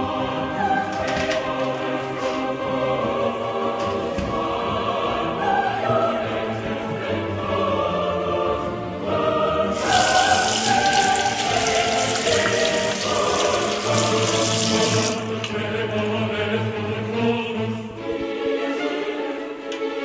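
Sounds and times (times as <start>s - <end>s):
choral music: 0.0s - 20.0s
faucet running into basin: 9.8s - 15.4s.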